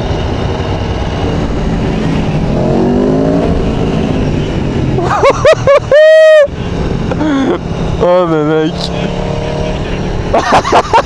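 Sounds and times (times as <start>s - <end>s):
motorcycle engine accelerating: 0.0s - 5.4s
wind and road noise: 0.0s - 11.0s
rising-and-falling tones: 0.2s - 9.7s.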